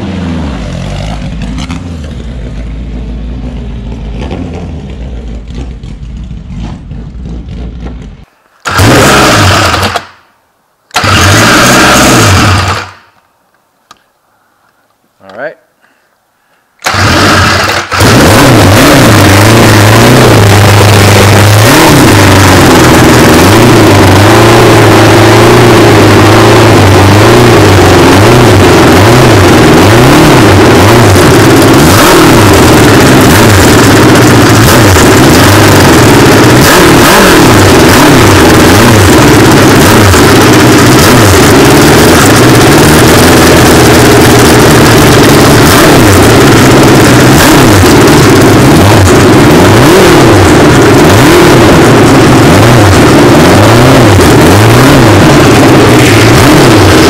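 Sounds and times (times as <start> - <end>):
engine revving with open exhaust: 0.0 - 10.0, 11.0 - 13.0, 16.8 - 57.0.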